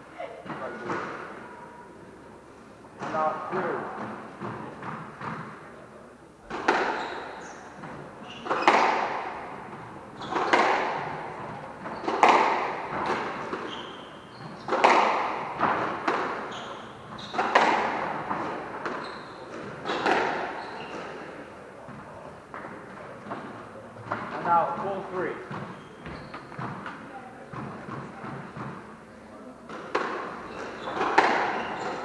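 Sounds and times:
squash ball hits echoing: 6.4s - 21.0s, 29.7s - 32.0s
shoes squeaking on wooden floor: 6.6s - 22.3s, 23.3s - 26.9s, 30.2s - 32.0s.

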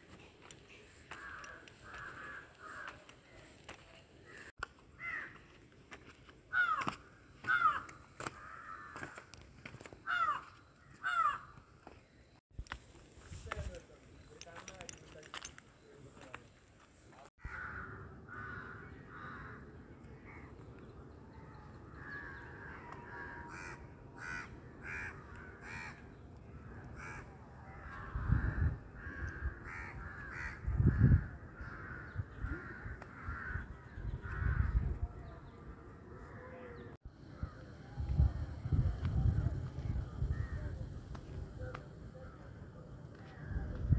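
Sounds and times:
crows cawing: 1.0s - 3.6s, 4.3s - 5.6s, 6.5s - 11.6s, 17.4s - 20.5s, 21.9s - 34.9s
wind buffeting microphone: 27.9s - 35.5s, 37.2s - 42.0s, 43.4s - 43.9s.

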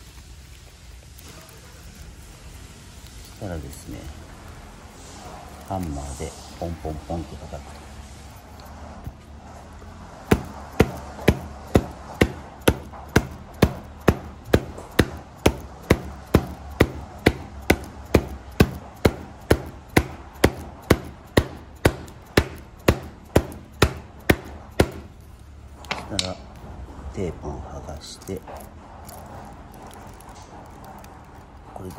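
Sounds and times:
mallet tapping rubber patch: 10.2s - 25.2s.

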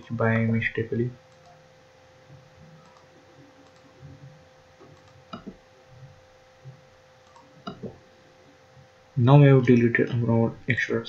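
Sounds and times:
faint electrical hum: 0.0s - 11.0s
computer clicks: 1.3s - 1.6s, 2.8s - 3.9s, 4.8s - 5.6s, 7.2s - 7.9s.

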